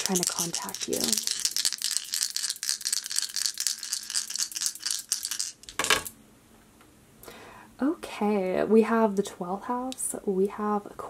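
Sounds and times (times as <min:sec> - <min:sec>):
dice rattling: 0:00.0 - 0:06.2.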